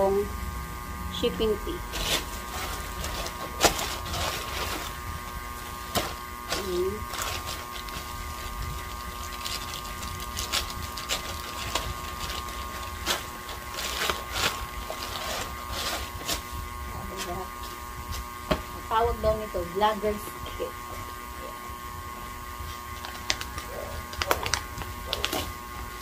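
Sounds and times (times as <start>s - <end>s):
steady electrical hum: 0.0s - 26.0s
plastic crinkling and tearing: 1.9s - 16.5s, 22.6s - 26.0s.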